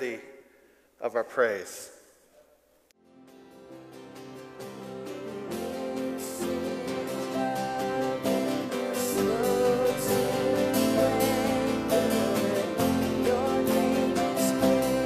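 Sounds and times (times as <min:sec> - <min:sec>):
acoustic guitar: 0:03.0 - 0:15.0
piano: 0:03.0 - 0:15.0
worship band music: 0:03.6 - 0:15.0.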